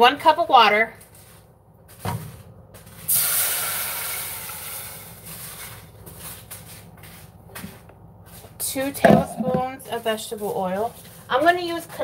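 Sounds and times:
water hissing in hot pan: 3.1 - 5.4.

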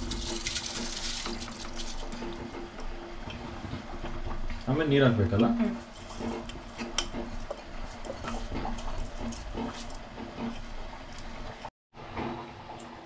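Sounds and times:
water pouring into a pot: 0.0 - 2.6.

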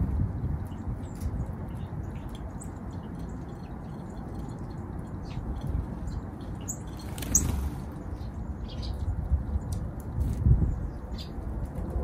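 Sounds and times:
wings fluttering: 6.8 - 8.0.

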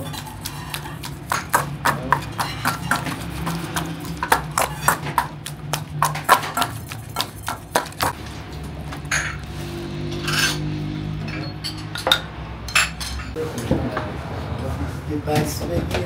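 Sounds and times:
metal masher knocking metal bowl: 0.0 - 8.2.

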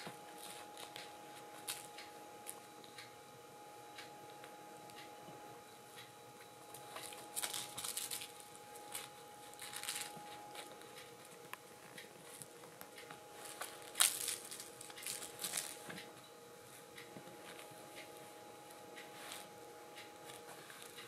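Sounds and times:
kitten scuffling with toy on cloth: 6.8 - 10.7, 13.4 - 16.0, 19.1 - 19.5.

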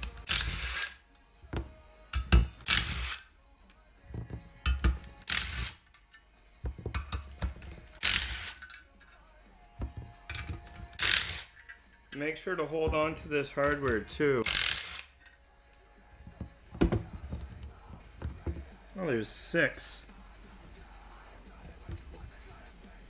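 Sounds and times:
cordless drill whirring: 2.7 - 3.2, 5.3 - 5.8, 8.0 - 8.6, 11.0 - 11.5, 14.5 - 15.2
loosened bolts clattering: 6.0 - 9.2, 9.8 - 15.4.

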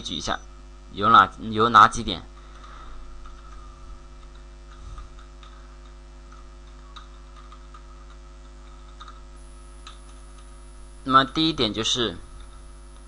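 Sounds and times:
steady electrical hum: 0.0 - 13.0
computer keyboard keystrokes: 6.3 - 9.2.

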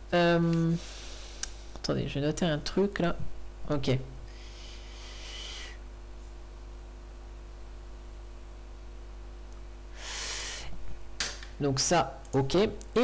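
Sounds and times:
low electrical hum: 0.0 - 13.0
faint hiss: 4.3 - 5.8, 9.9 - 10.8
burst of hissy noise: 4.4 - 5.8, 9.9 - 10.7.

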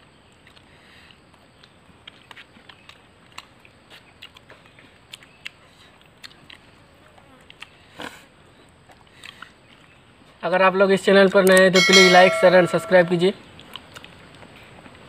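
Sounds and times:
people chewing food: 0.1 - 10.4, 13.4 - 15.0.

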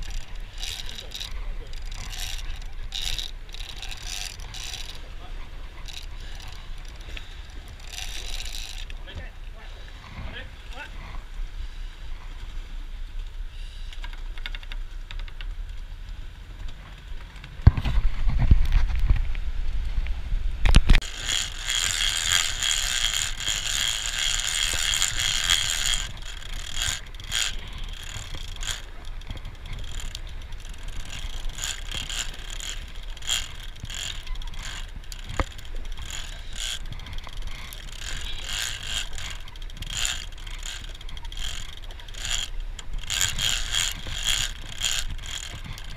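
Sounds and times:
fishing reel ratcheting clicks: 0.0 - 9.2, 21.0 - 45.9
reel whirring: 0.0 - 12.5, 20.7 - 45.9
wind buffet on microphone: 17.6 - 45.9.

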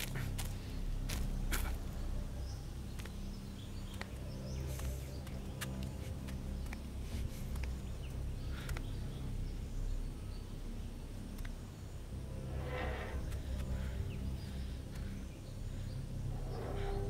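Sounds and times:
low rumbling drone: 0.0 - 17.0
light footsteps: 2.8 - 9.1.

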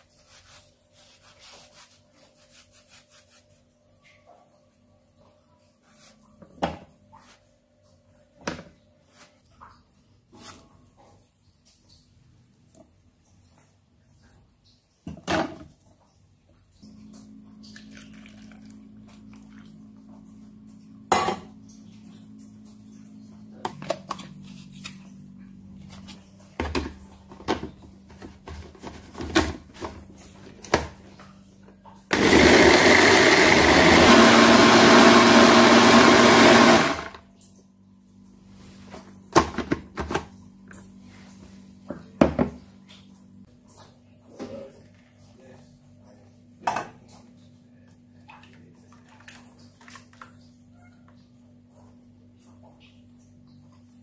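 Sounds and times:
electric blender running: 32.1 - 37.2.

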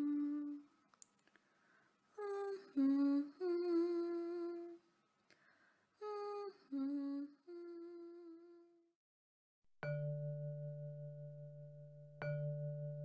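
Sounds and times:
person humming: 0.0 - 0.7, 2.2 - 4.8, 6.0 - 8.9.

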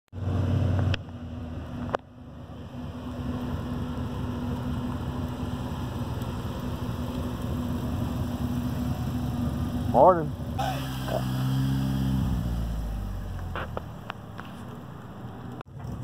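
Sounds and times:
car engine rumble: 0.1 - 16.0.

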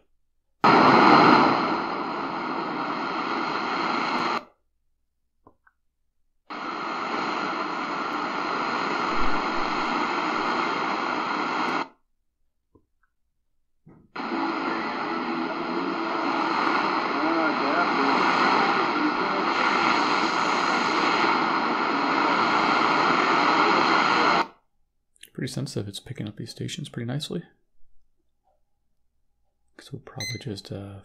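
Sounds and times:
shortwave radio static and hiss: 0.6 - 4.5, 6.5 - 11.9, 14.2 - 24.5.

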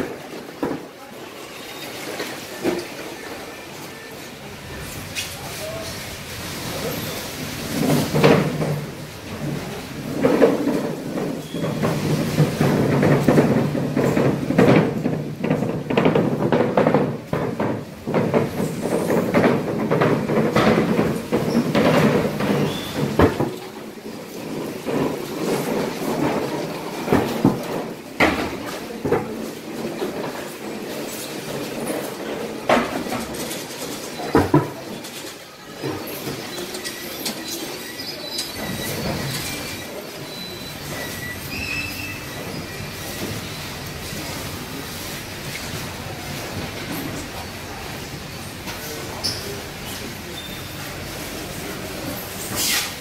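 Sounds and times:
knocks and clatter: 0.0 - 0.9, 7.4 - 41.5.

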